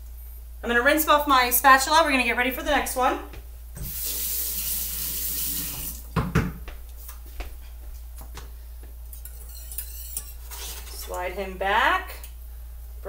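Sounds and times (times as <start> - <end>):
kitchen utensils and saucepans clinking: 9.2 - 11.2.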